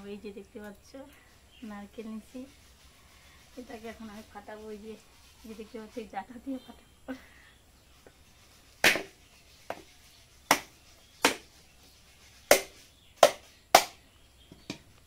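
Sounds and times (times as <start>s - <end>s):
knife knocking on coconut: 10.5s - 11.5s.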